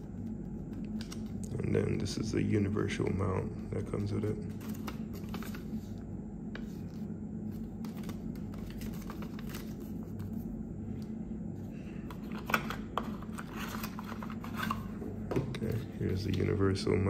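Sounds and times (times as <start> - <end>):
steady low hum: 0.0 - 17.0
packaging rustling: 7.5 - 10.5.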